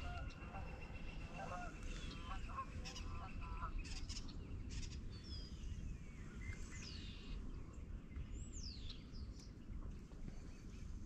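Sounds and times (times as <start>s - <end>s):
birds calling: 0.0s - 5.6s.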